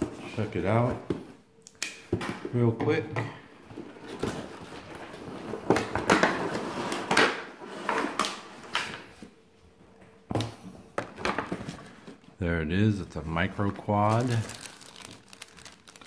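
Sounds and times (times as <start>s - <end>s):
cardboard and plastic rustling: 3.6s - 7.1s, 11.0s - 12.3s, 13.1s - 16.0s.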